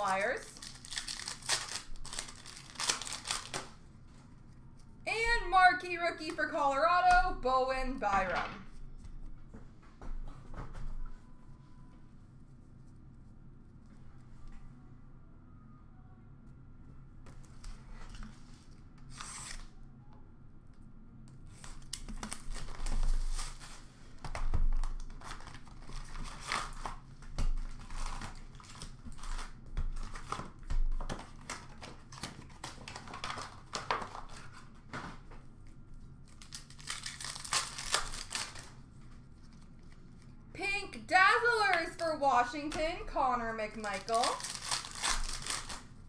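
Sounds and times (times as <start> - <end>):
card wrappers tearing and crinkling: 0.0 - 3.8, 19.1 - 19.7, 21.5 - 23.9, 24.8 - 34.8, 36.2 - 40.2, 43.8 - 46.0.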